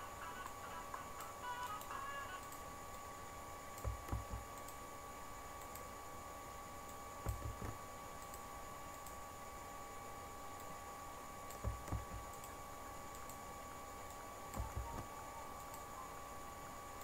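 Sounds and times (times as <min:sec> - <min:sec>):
faint background hum: 0:00.0 - 0:17.0
computer mouse clicks: 0:03.8 - 0:04.8, 0:06.8 - 0:09.2, 0:11.4 - 0:13.4, 0:14.1 - 0:15.8.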